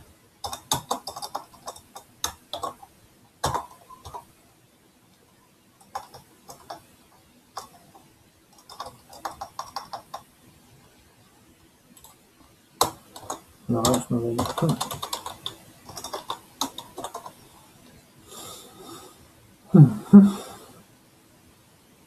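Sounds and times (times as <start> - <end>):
computer keyboard typing: 0.4 - 4.3, 5.8 - 6.9, 7.6 - 10.3, 12.8 - 17.4.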